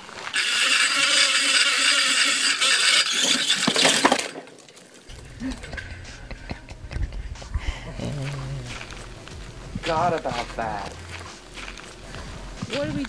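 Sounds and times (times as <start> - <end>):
rope hissing through pulley: 0.0 - 6.4
faint steady whine: 0.0 - 13.0.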